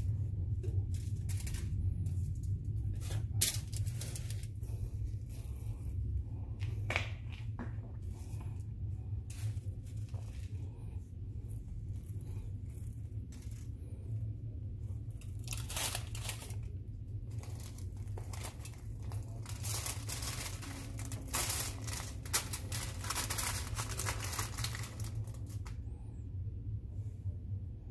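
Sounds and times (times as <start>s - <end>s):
foil and plastic bag crinkling: 0.0s - 5.8s, 11.5s - 13.8s, 15.0s - 25.8s
steady low hum: 0.0s - 27.9s.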